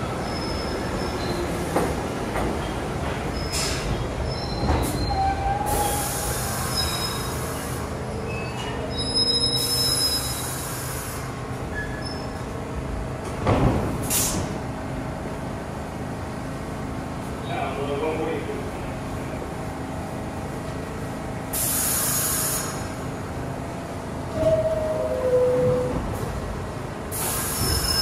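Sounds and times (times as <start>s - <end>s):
subway train rumbling: 0.0s - 28.0s
high wheel squeals: 0.2s - 1.6s, 3.3s - 10.9s, 11.7s - 12.4s, 27.2s - 28.0s.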